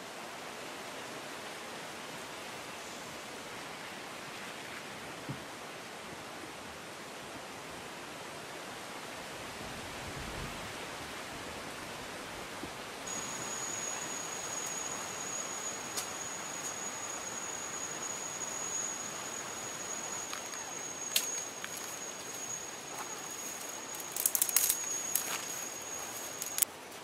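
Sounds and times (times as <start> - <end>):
high-pitched insect drone: 13.1 - 26.7
steady hiss: 13.1 - 27.0
dry twigs snapping: 21.1 - 26.6.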